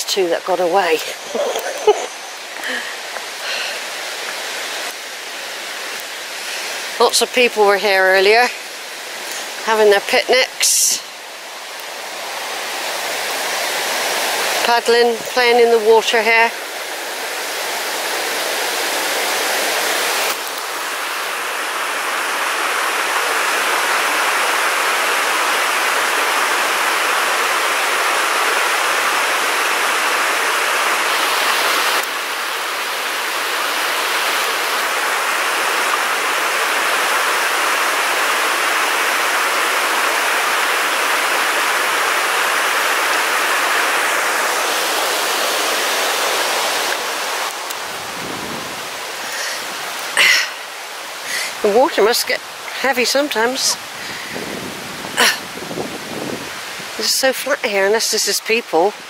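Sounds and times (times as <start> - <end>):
river rushing over rocks: 0.0 - 59.0.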